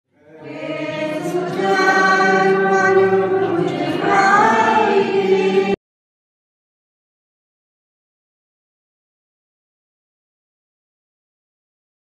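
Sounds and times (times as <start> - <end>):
voices singing slow tune: 0.1 - 5.8.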